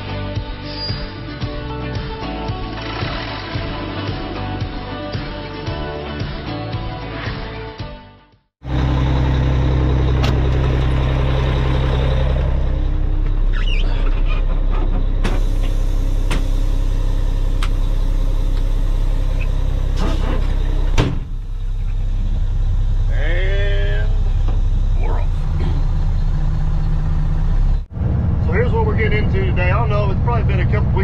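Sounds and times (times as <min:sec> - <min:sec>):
diesel engine idling: 0:08.6 - 0:31.0.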